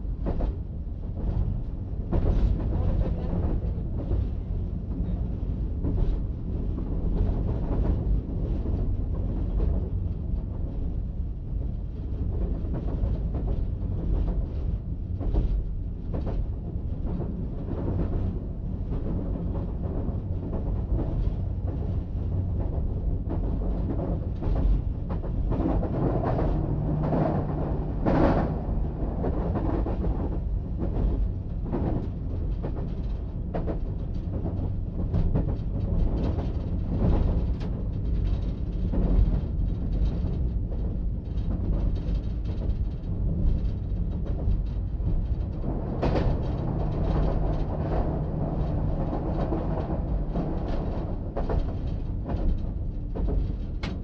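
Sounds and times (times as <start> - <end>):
train rumbling at speed: 0.0 - 54.0
wheels clacking over rail joints: 42.4 - 54.0.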